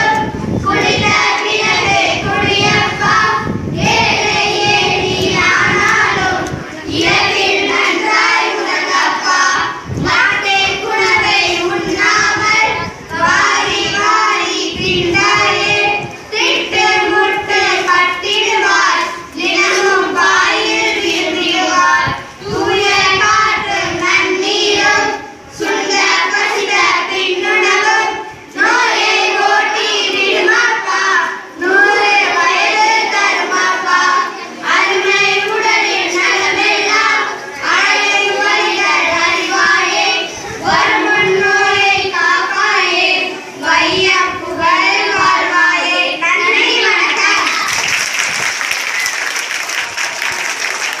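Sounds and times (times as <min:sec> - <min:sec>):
child singing: 0:00.0 - 0:47.8.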